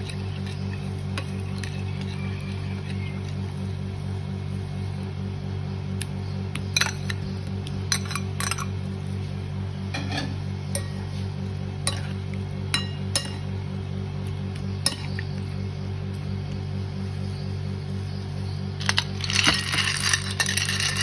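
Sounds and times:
metal spoon clinking against bowl: 14.8 - 15.2.

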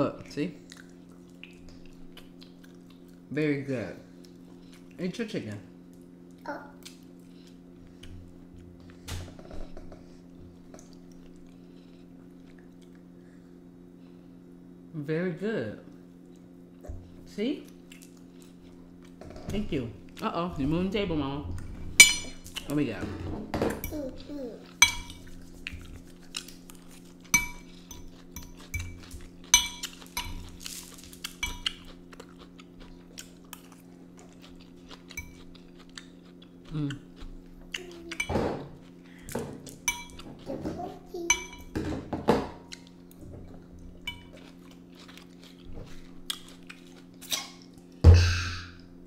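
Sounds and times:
steady low hum: 0.0 - 49.0
forks clinking on plates: 22.0 - 22.6, 24.8 - 25.3, 27.3 - 31.8, 39.8 - 40.3, 44.0 - 44.4
forks tapping on plates: 22.0 - 22.6, 24.8 - 25.9, 27.3 - 30.6, 39.4 - 42.6.

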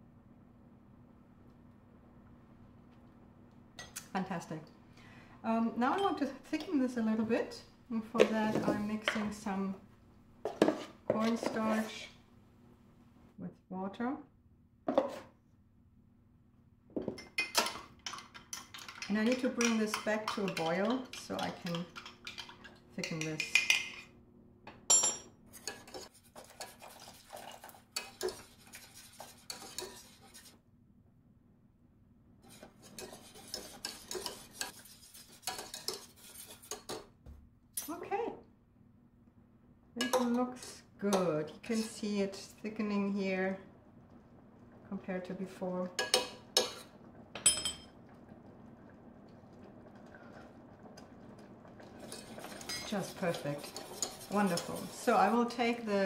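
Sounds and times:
whisk scraping metal pot: 18.0 - 24.0, 25.5 - 30.6, 32.4 - 37.0, 51.8 - 56.0
spoons clinking on saucepan: 46.0 - 47.9.

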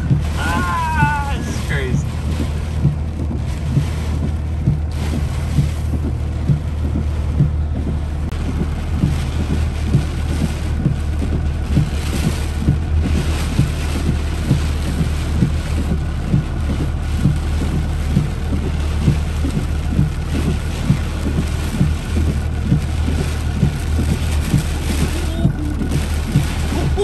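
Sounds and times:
car engine rumble: 0.0 - 27.0
dull thumps: 0.0 - 27.0
heavy rain on car: 0.0 - 27.0.

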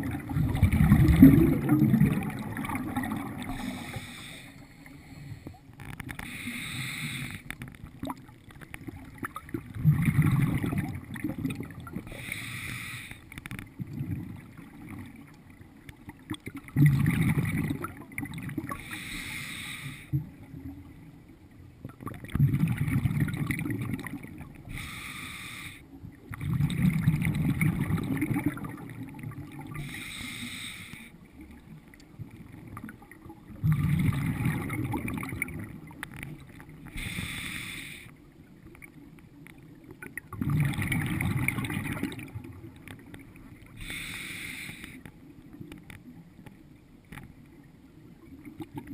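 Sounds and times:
bubbling exhaust: 0.0 - 4.0
diver inhaling through regulator: 3.4 - 5.6, 6.2 - 7.5, 12.1 - 13.3, 18.7 - 20.2, 24.7 - 25.9, 29.8 - 31.2, 36.9 - 38.2, 43.7 - 45.0.

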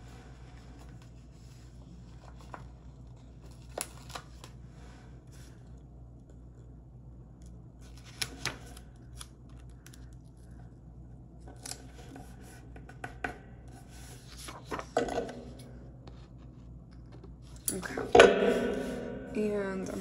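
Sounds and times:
paper rustle: 0.5 - 4.6, 13.9 - 15.0.

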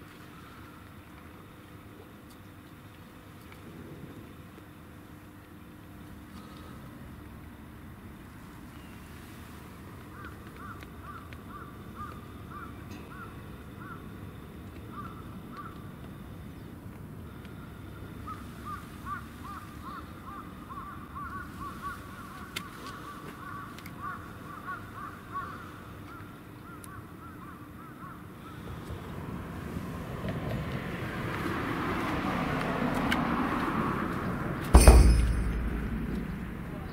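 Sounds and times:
low outdoor rumble: 28.2 - 36.9.

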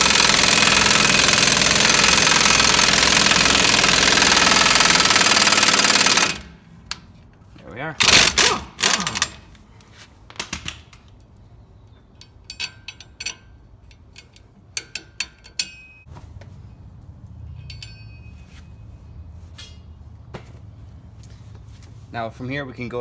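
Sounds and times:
metallic clicks of nut and washers: 10.3 - 16.0.

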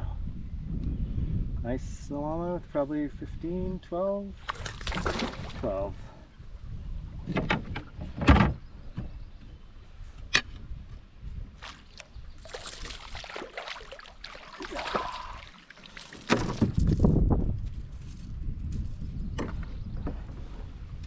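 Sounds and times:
rustling and scraping: 15.9 - 19.1
knocks in a canoe: 16.2 - 16.9.

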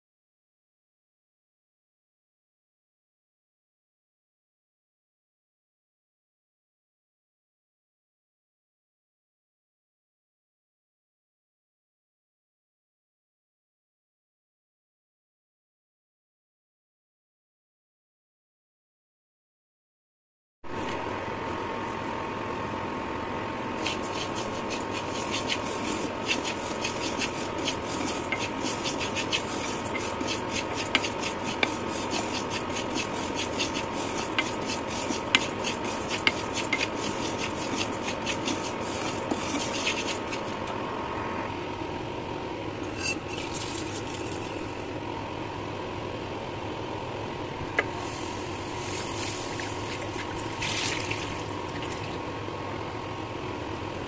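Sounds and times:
steady hum: 20.6 - 54.0
spatula stirring lentils in a pan: 23.8 - 40.6.

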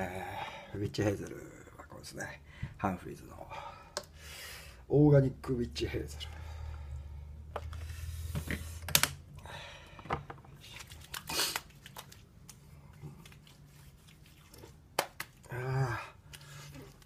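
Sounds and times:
wet hands smacking skin: 10.7 - 15.5
liquid splashing into palm: 10.7 - 15.6.

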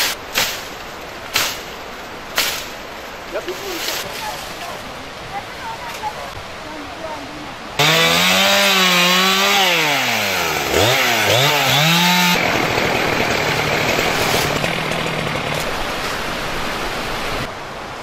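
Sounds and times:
fast-flowing stream: 2.9 - 7.8, 14.6 - 18.0
chainsaw cutting branches: 7.8 - 16.5.

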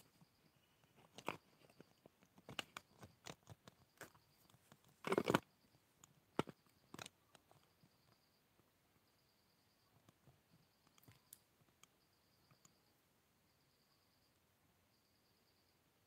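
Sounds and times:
phone handling clicks and rustles: 0.8 - 7.7.

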